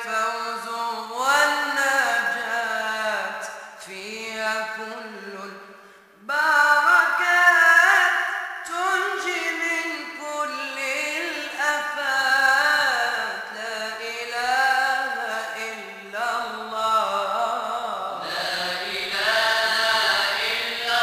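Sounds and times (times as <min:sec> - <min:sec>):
vocal ensemble chanting: 0:16.1 - 0:21.0.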